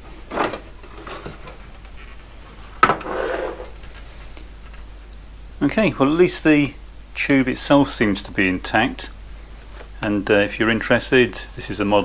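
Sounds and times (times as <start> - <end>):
plastic cover scraping: 0.2 - 4.0.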